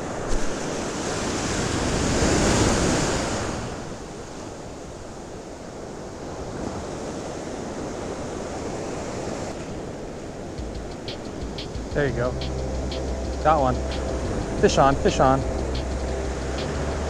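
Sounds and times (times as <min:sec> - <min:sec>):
ocean surf on a beach: 0:00.0 - 0:12.3, 0:14.6 - 0:15.4.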